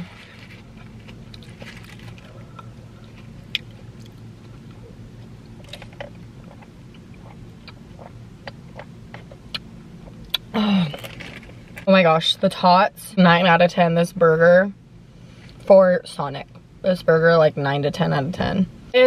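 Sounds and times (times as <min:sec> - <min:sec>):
steady low hum: 0:00.0 - 0:19.0
chewing food: 0:00.5 - 0:10.4.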